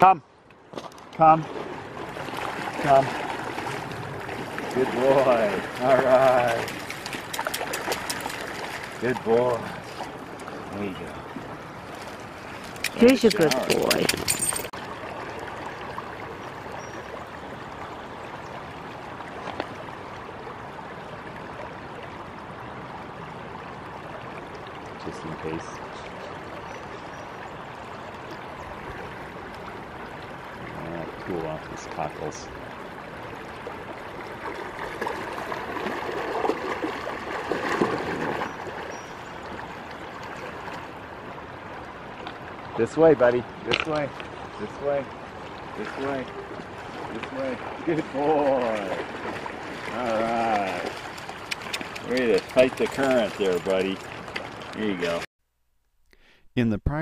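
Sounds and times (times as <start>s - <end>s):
river flowing over stones: 1.0s - 55.3s
dog splashing in water: 2.3s - 9.1s, 12.0s - 14.7s, 34.8s - 38.8s, 48.2s - 55.2s
clicking and rustling: 12.6s - 14.7s.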